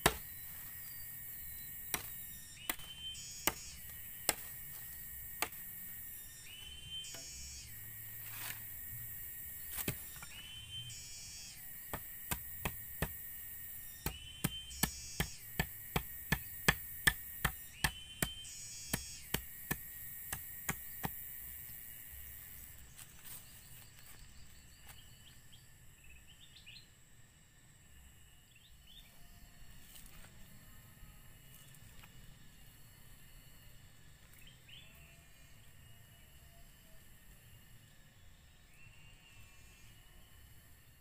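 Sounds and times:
machete chopping wood: 0:00.0 - 0:00.4, 0:01.8 - 0:05.7, 0:09.6 - 0:10.3, 0:11.9 - 0:13.4, 0:14.0 - 0:21.3.

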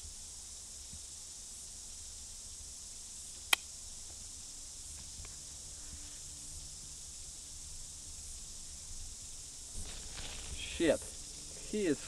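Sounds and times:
high hiss: 0:00.0 - 0:12.0.

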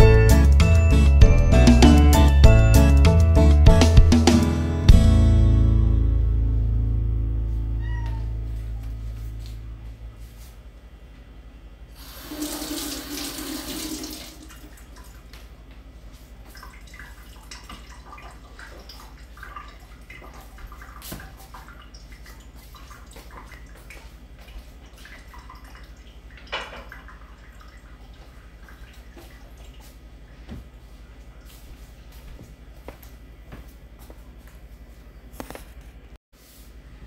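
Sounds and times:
kitchen tap running: 0:12.0 - 0:15.2.

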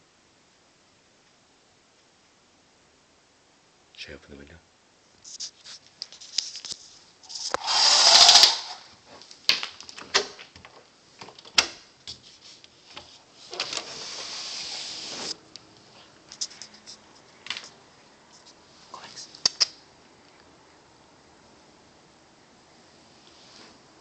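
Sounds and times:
window sliding open: 0:07.4 - 0:08.8, 0:13.4 - 0:15.4.

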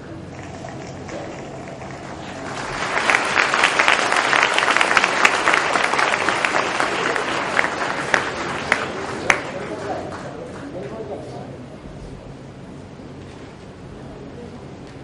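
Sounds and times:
audience applauding: 0:00.3 - 0:10.9.

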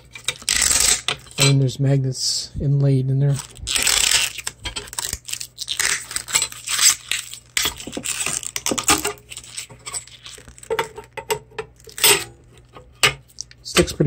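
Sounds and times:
plastic film crinkling: 0:03.3 - 0:11.0.

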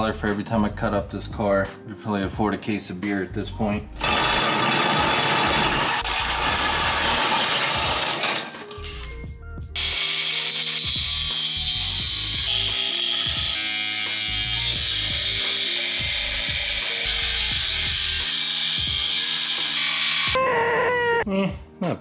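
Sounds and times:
music: 0:00.0 - 0:22.0
angle grinder cutting steel: 0:04.0 - 0:08.6, 0:09.8 - 0:20.4.

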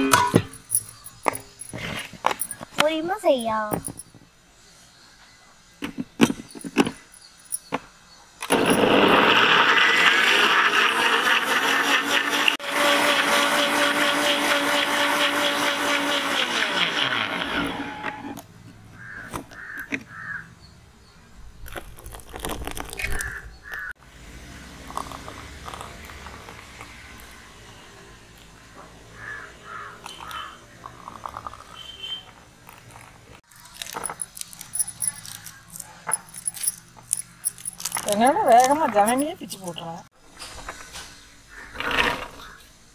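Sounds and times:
handling clatter: 0:00.1 - 0:04.3, 0:05.8 - 0:07.8, 0:32.7 - 0:39.7
mixer grinder motor running: 0:08.5 - 0:18.4.

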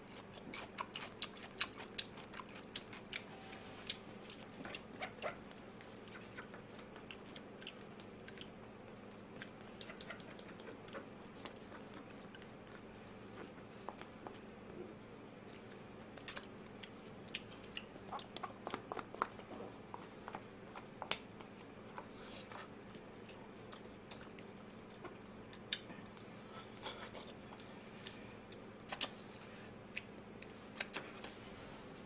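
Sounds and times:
faint chewing: 0:00.0 - 0:31.4.

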